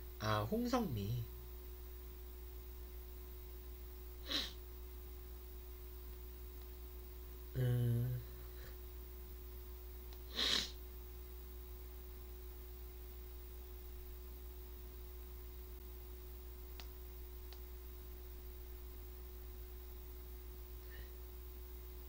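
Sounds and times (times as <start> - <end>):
low electrical hum: 0.0 - 22.0
sharp breath through nose: 4.2 - 4.6, 10.3 - 10.8
man humming hmm: 7.5 - 8.8
faint clicks: 16.7 - 17.7.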